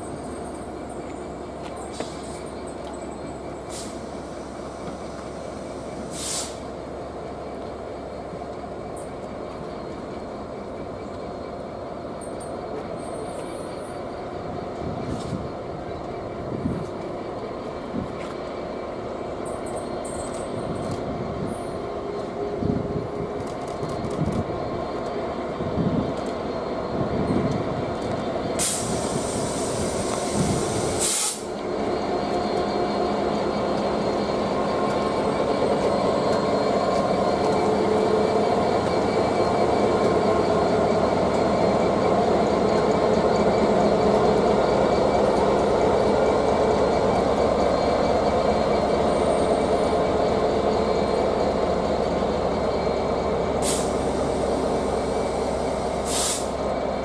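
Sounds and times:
train rumbling along track: 0.0s - 57.0s
short hisses: 6.1s - 6.7s, 28.6s - 31.5s, 56.0s - 56.6s.

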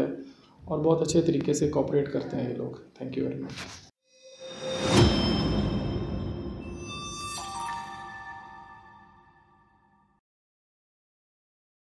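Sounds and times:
held background music notes: 4.3s - 10.0s.

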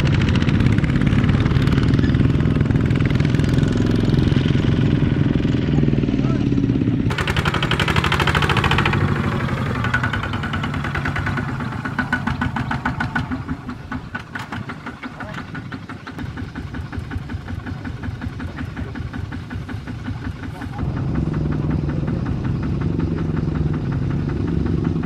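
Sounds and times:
diesel engine chugging: 0.0s - 25.0s.

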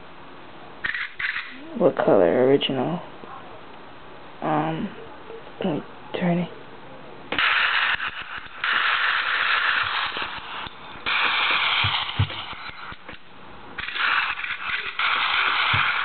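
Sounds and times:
tinny simulated gunfire bursts: 7.3s - 13.1s, 13.8s - 16.0s.

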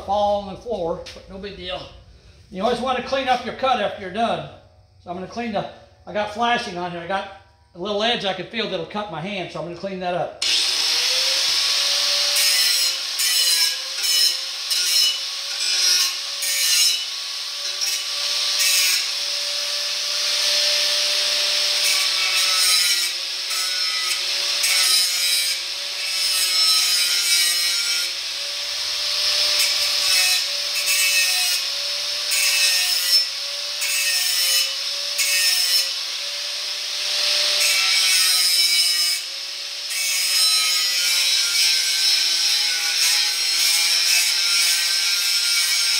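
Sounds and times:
angle grinder whining: 10.4s - 45.9s.

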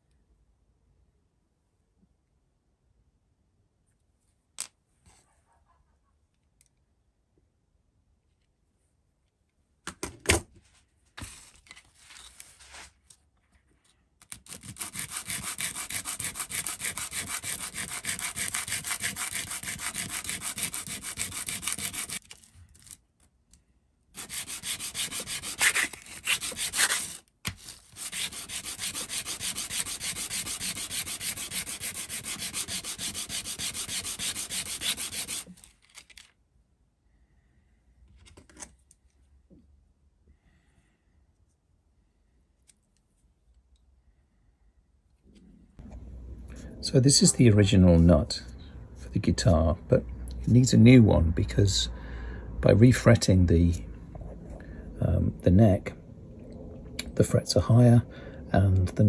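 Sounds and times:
bone rubbed on sandpaper: 14.4s - 22.2s, 24.2s - 35.6s.

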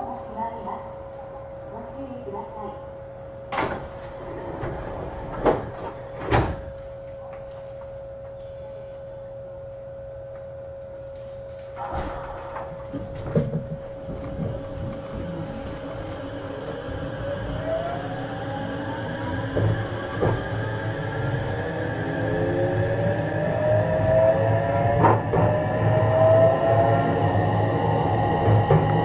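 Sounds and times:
inverter whine rising in pitch: 11.2s - 29.0s
train clunks: 19.4s - 20.5s, 28.4s - 29.0s.

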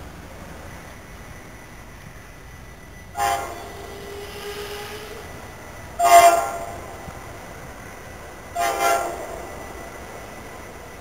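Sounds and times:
locomotive air horn blasts: 3.2s - 5.3s, 6.0s - 7.1s, 8.6s - 9.7s.

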